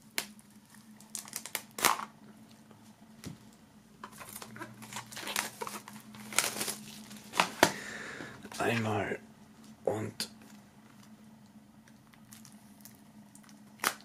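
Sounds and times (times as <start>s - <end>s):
plastic shrink wrap crinkling: 0.1s - 2.1s, 4.0s - 7.7s.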